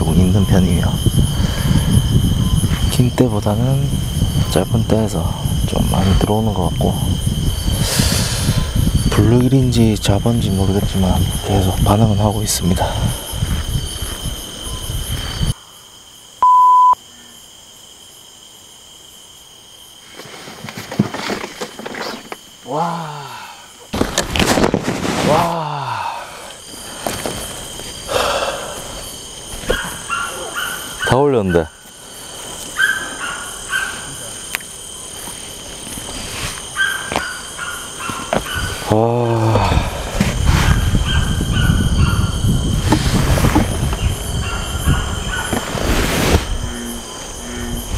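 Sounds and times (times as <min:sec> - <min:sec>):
frogs calling: 0:00.0 - 0:19.5, 0:25.5 - 0:47.9
crickets chirring: 0:00.0 - 0:47.9
loud electronic beep: 0:16.4 - 0:17.0.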